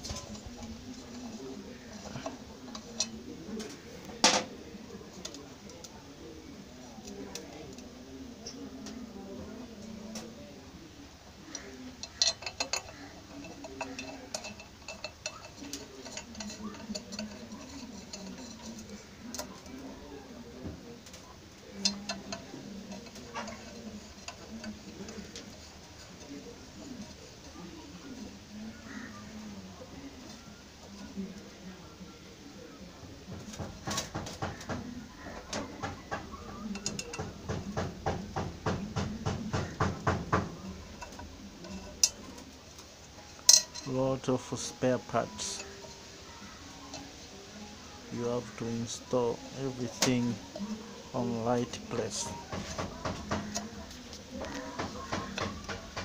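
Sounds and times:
nuts and bolts clinking: 0.0s - 6.0s, 11.4s - 29.4s, 33.2s - 56.0s
metallic clicks of nuts and bolts: 11.5s - 19.7s, 21.8s - 26.2s, 35.4s - 43.9s.

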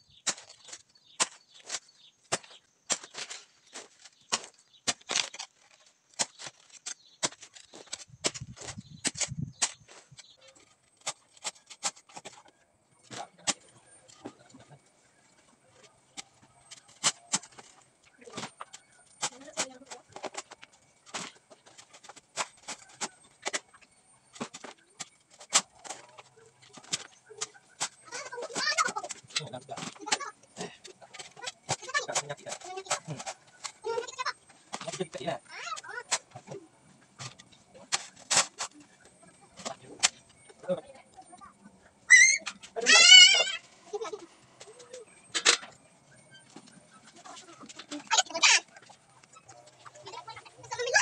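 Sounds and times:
earth scraping: 0.0s - 41.1s
hoe chopping into soil: 0.2s - 5.5s.

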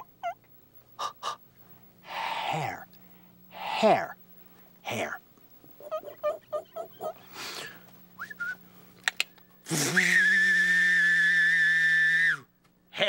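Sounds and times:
whistle-like vocal tone: 8.2s - 8.6s, 9.7s - 12.5s.

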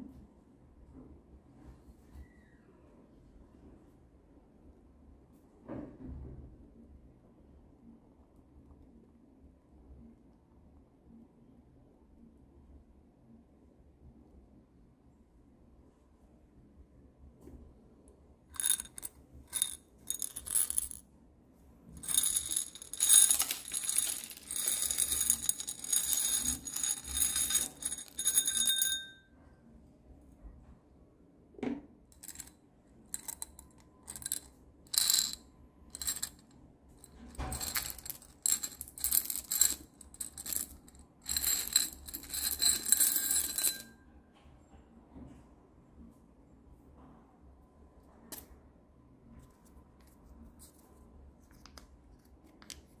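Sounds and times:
plastic beads pouring and rattling: 18.6s - 21.0s, 22.0s - 28.8s, 36.0s - 36.3s, 37.5s - 40.7s, 41.3s - 43.8s.

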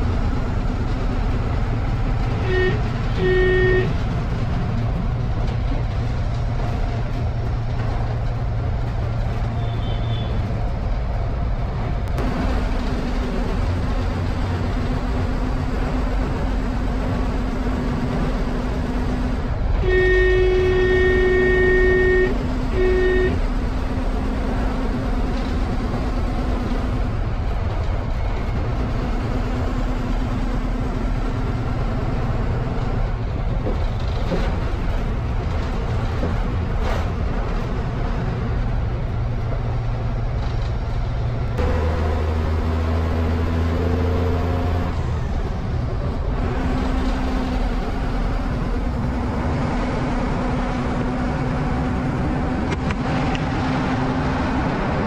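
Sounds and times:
bus diesel engine running: 0.0s - 55.0s
road noise: 0.0s - 55.0s
bus horn: 2.2s - 4.2s, 9.6s - 10.4s, 19.8s - 23.7s.

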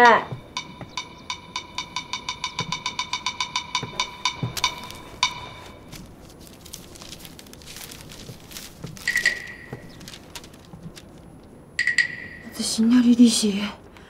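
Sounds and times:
wood-block percussion hits: 0.3s - 6.0s, 11.8s - 12.6s
paper rustling and crackling: 4.1s - 11.6s.

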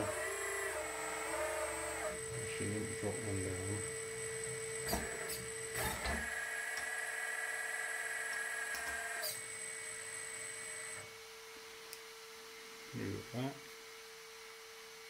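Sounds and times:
hydraulic pump whining: 0.0s - 11.1s.

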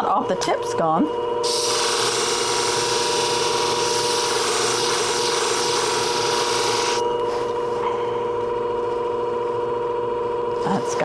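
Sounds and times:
blade grinding hiss: 1.4s - 7.0s
machine motor hum: 1.4s - 11.0s.

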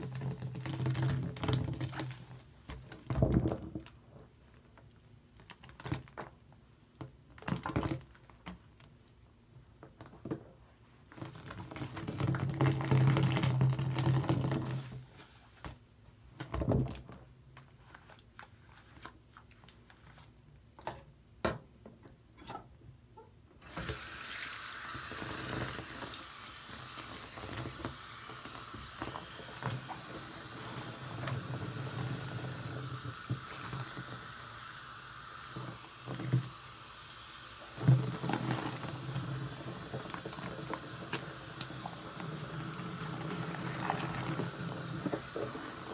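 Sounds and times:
tap water running into basin: 23.6s - 45.9s.

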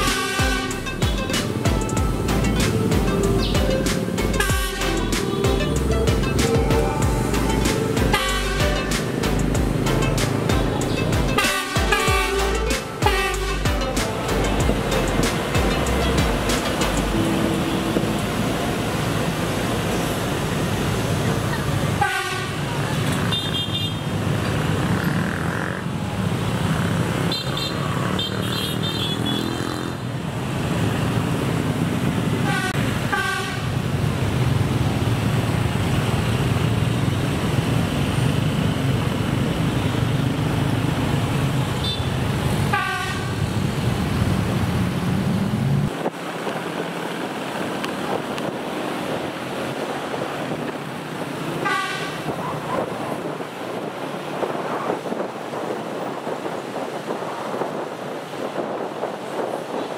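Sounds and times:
traffic engine rumble: 0.0s - 59.9s.

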